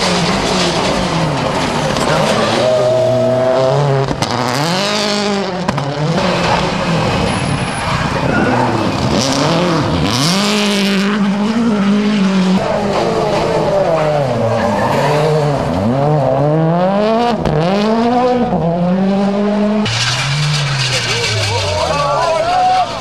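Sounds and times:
rally car engines revving: 0.0s - 23.0s
tyres sliding on gravel: 19.8s - 23.0s.

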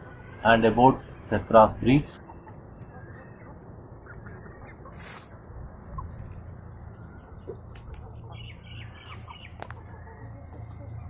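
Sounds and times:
chickens chirping: 0.0s - 11.0s
rustle: 4.2s - 5.4s.

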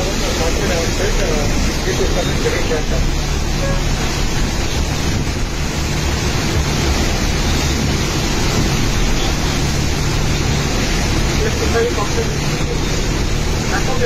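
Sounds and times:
heavy rain: 0.0s - 14.0s
wind buffeting microphone: 4.2s - 11.3s.

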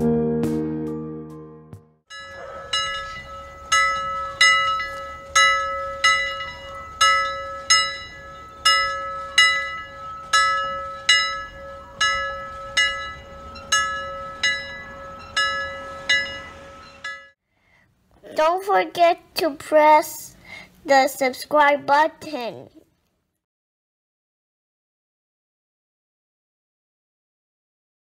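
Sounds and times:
timer alarm bell ringing: 2.1s - 17.4s.

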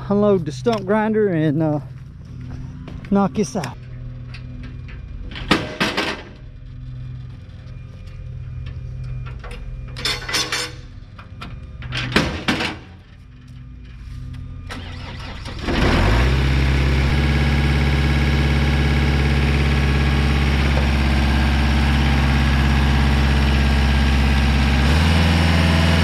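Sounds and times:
low steady hum: 0.0s - 15.8s
metal ramps clanking: 3.8s - 6.5s, 8.6s - 14.0s
stump grinder engine running: 14.7s - 26.0s.

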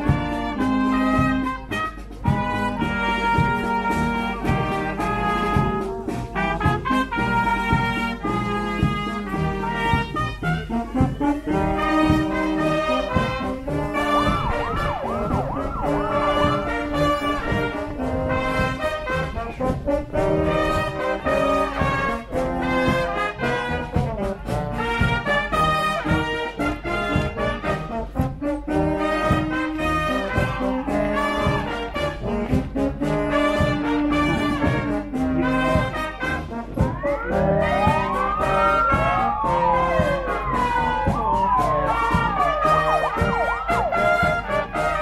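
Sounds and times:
brass band playing a march: 0.0s - 45.0s
steady drum beat: 0.0s - 45.0s.

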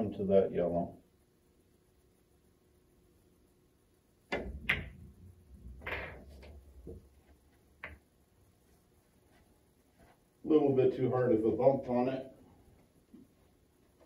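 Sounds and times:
cue tip clicking on ball: 4.3s - 5.0s
ball dropping into pocket: 4.3s - 7.1s
billiard balls clacking: 4.3s - 8.1s
balls rolling on cloth: 4.3s - 10.4s.

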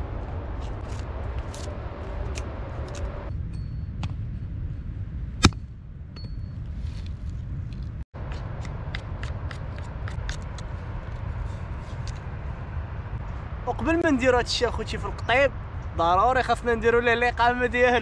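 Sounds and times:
steady low rumble: 0.0s - 18.0s
knife scraping bark off stick: 8.3s - 12.3s.

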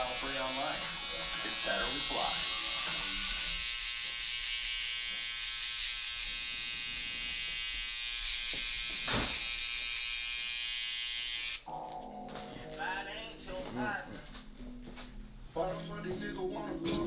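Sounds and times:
electric hair trimmer buzzing: 0.0s - 11.6s.

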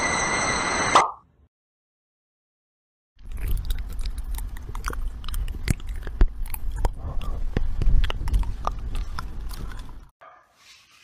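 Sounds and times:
cat teeth crunching on cable: 3.2s - 10.1s.

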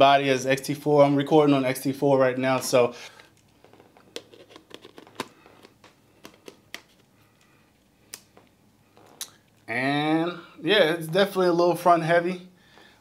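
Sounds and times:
faint handling noise: 2.4s - 9.7s.

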